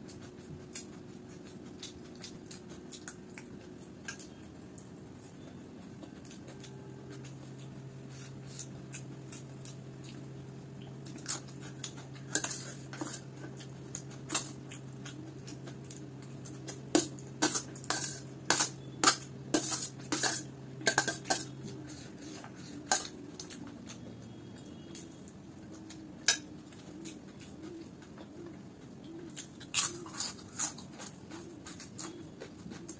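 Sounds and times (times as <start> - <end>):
steady low hum: 0.0 - 32.9
metal spoon scraping a plate: 12.2 - 13.3, 17.0 - 23.2.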